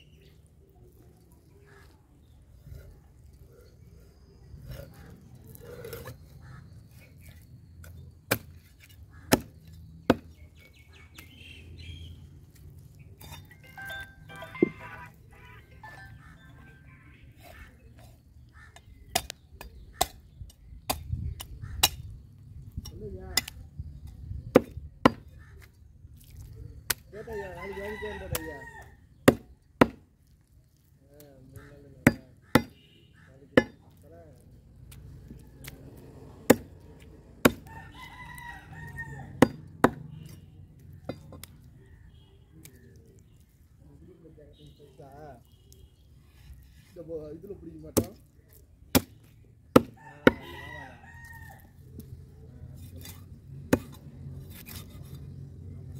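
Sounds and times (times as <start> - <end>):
knife chopping on wooden block: 9.2 - 10.4, 29.3 - 30.1, 32.0 - 32.8, 33.6 - 33.8, 36.4 - 36.8, 39.4 - 40.0, 48.9 - 50.5
rooster crowing: 37.6 - 39.4, 50.0 - 51.7.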